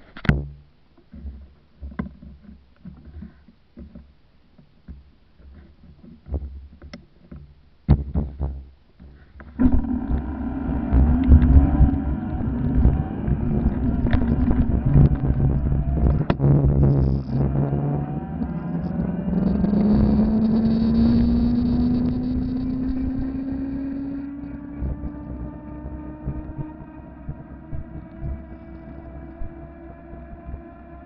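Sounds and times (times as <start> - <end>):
road rumble: 9.4 - 31.0
electric motor whining: 9.6 - 31.0
wind buffeting microphone: 9.6 - 31.0.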